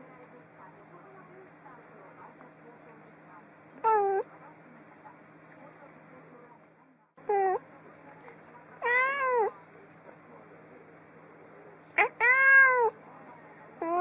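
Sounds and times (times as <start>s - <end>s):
cat meowing: 3.8s - 4.3s, 8.8s - 9.5s, 12.0s - 13.0s, 13.8s - 14.0s.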